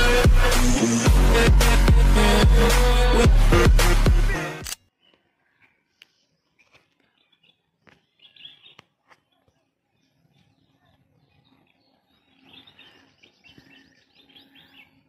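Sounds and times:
birds chirping: 0:04.8 - 0:15.0.

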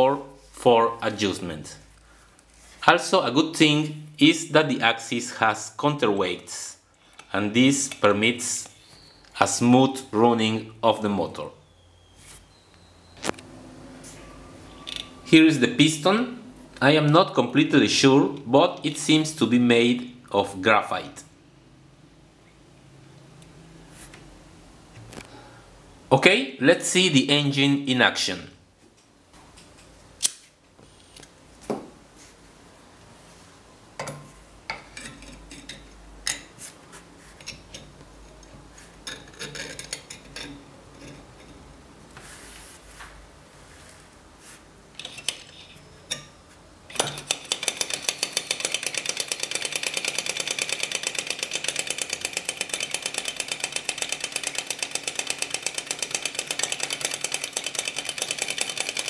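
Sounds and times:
small engine clicking: 0:46.9 - 0:59.0.

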